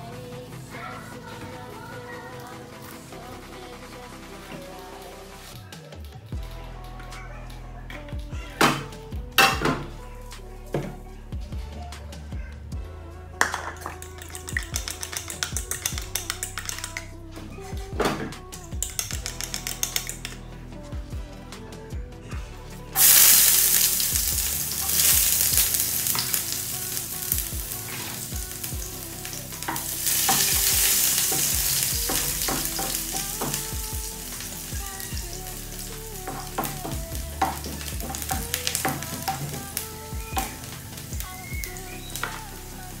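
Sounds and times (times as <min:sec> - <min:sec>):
onion sizzling in hot oil: 0:23.0 - 0:42.7.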